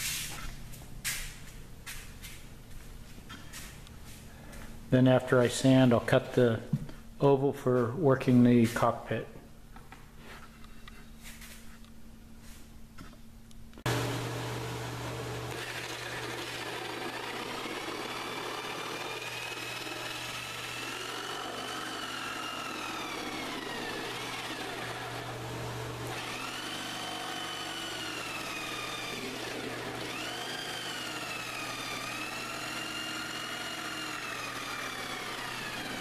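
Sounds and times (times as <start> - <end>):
electric saw cutting wood: 13.9 - 36.0.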